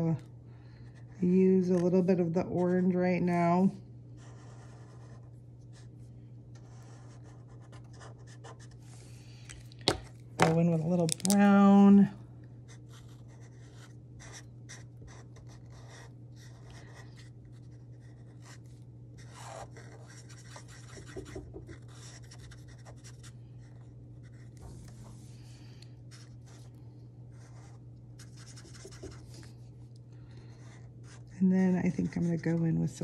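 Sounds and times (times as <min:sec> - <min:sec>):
steady low hum: 0:00.0 - 0:33.0
marker scribbling on paper: 0:27.4 - 0:29.4.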